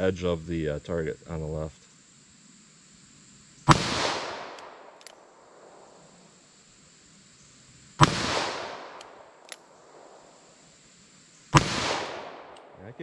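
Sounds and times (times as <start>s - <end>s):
revolver gunshot: 3.7s - 5.0s, 8.0s - 9.4s, 11.5s - 12.7s
rolling gunshot echo: 3.7s - 5.0s, 8.0s - 9.3s, 11.6s - 12.6s
faint click: 4.5s - 5.2s.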